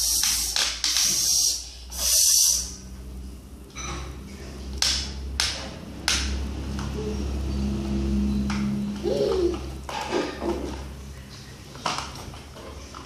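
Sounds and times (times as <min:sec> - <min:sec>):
short hissing sounds: 0:00.0 - 0:03.0.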